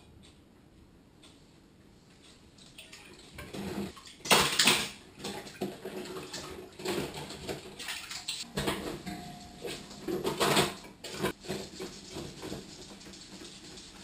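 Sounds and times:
water sloshing and splashing: 0:02.6 - 0:11.4.

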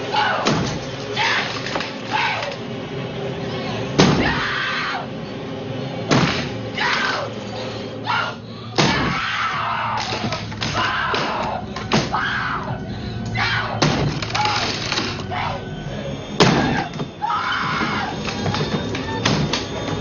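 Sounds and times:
background music: 0:00.0 - 0:20.0
woman screaming: 0:12.2 - 0:12.8.

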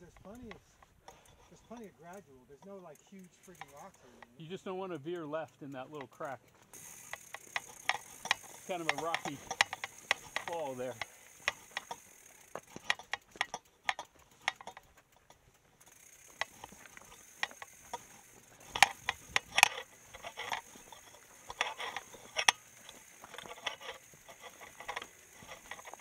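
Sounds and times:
bike clicks and knocks: 0:00.0 - 0:26.0
ratchet ticking: 0:00.0 - 0:26.0.

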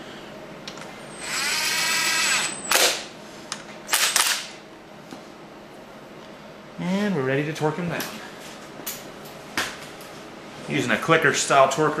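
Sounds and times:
electric driver motor: 0:01.2 - 0:02.8.

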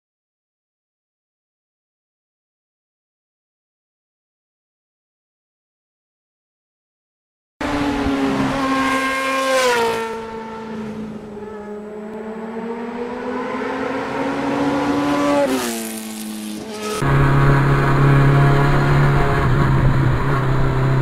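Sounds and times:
motorcycle engine accelerating: 0:07.6 - 0:21.0.

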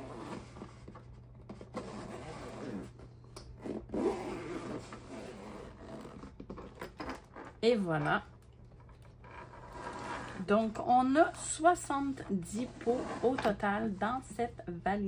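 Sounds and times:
zipper pulled open: 0:00.0 - 0:00.8, 0:01.6 - 0:03.0, 0:03.6 - 0:07.6, 0:09.2 - 0:10.7, 0:12.6 - 0:13.5
case rubbing while handled: 0:00.0 - 0:03.0, 0:03.6 - 0:07.6.

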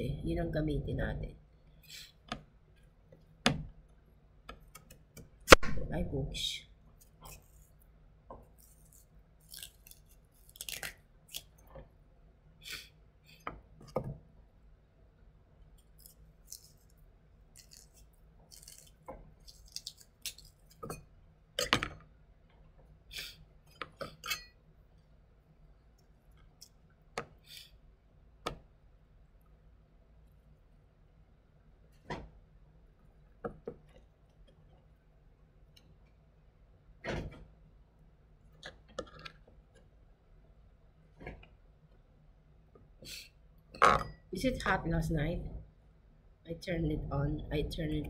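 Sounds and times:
knife scraping vegetable skin: 0:07.0 - 0:07.8, 0:08.6 - 0:11.6, 0:16.0 - 0:20.9.

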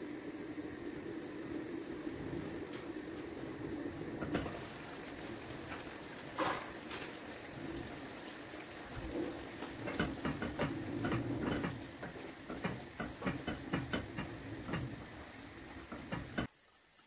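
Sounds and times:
steady sizzle: 0:00.0 - 0:17.0
spoon scraping a frying pan: 0:06.4 - 0:06.8.

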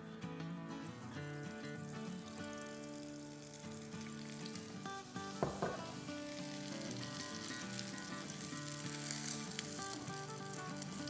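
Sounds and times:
soft background music: 0:00.0 - 0:11.0
oil sizzling in a pan: 0:00.9 - 0:11.0
single knock: 0:05.4 - 0:06.0.

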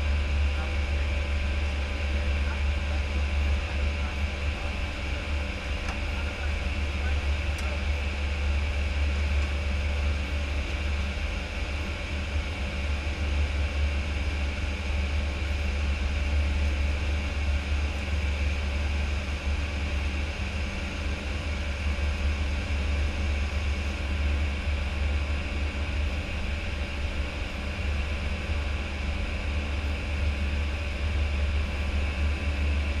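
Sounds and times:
cockpit low rumble: 0:00.0 - 0:33.0.

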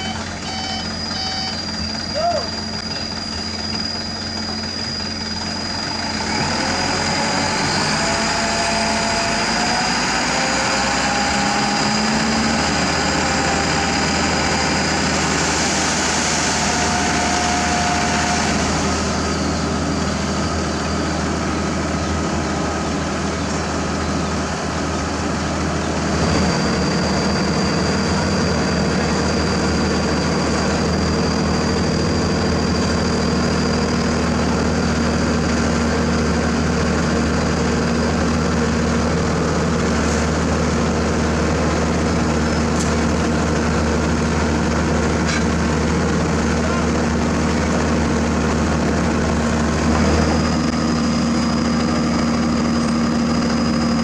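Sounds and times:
diesel engines running: 0:00.0 - 0:54.0.

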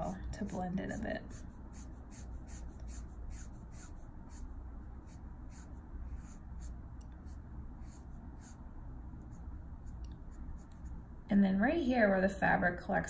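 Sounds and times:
faint low hum: 0:00.0 - 0:13.0
marker scratching on paper: 0:00.8 - 0:08.6, 0:09.2 - 0:11.0.

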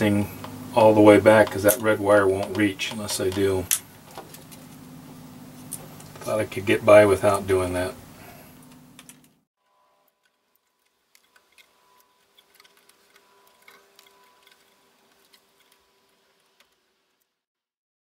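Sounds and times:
small clicks of tools and wires: 0:08.6 - 0:09.4, 0:10.1 - 0:15.8.

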